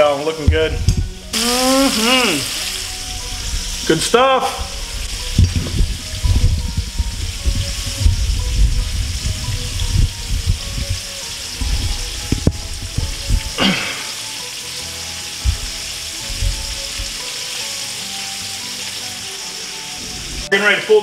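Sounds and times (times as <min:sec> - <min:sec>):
fish sizzling in hot oil: 0:00.0 - 0:21.0
low knocks and bumps: 0:04.6 - 0:13.6, 0:15.4 - 0:17.2.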